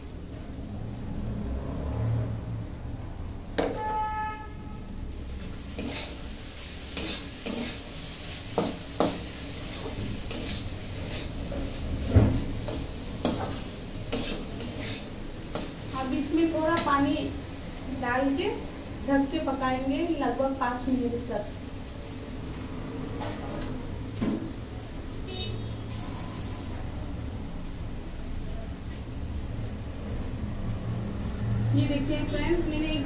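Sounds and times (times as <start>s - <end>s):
vegetables sizzling: 4.7s - 33.0s
metal spatula scraping pan: 5.7s - 15.9s.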